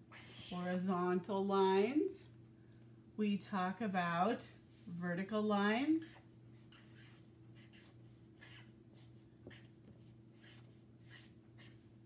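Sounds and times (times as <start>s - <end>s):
marker scratching on paper: 0.0s - 0.7s, 6.6s - 11.9s
low room hum: 0.0s - 12.0s.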